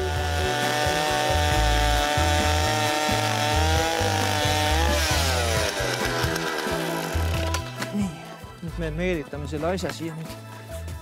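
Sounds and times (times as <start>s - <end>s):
petrol ice auger running: 0.0s - 8.4s.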